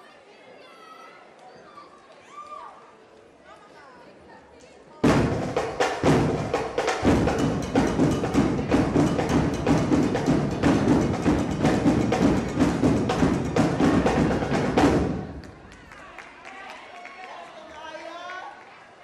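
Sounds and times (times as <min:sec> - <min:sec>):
percussion-driven music: 0:05.0 - 0:16.0.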